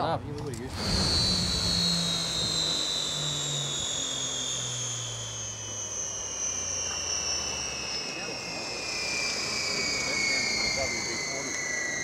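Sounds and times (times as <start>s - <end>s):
lower engine note: 0.0s - 12.0s
turbine engine whine winding down: 0.0s - 12.0s.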